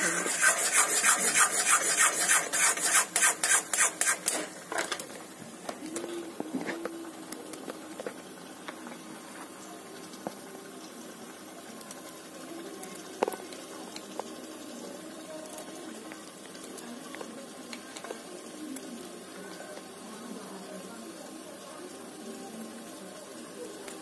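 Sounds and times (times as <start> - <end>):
spoon scraping thick pudding in pan: 0.0 - 4.5.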